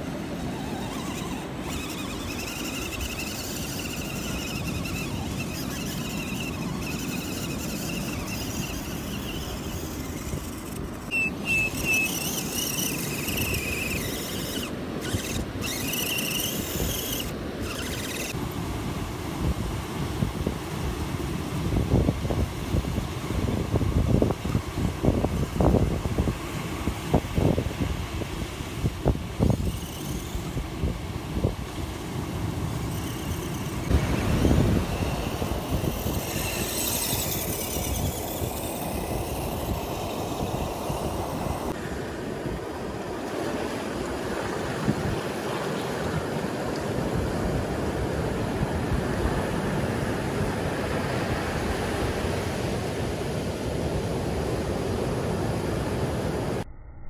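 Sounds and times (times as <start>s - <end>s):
wind buffeting microphone: 19.0s - 32.0s, 32.6s - 43.0s.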